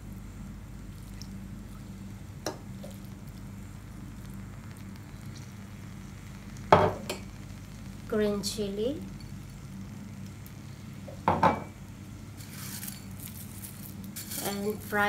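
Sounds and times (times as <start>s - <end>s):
faint hum and hiss: 0.0s - 15.0s
glass bowl knocking on wood: 11.3s - 11.7s.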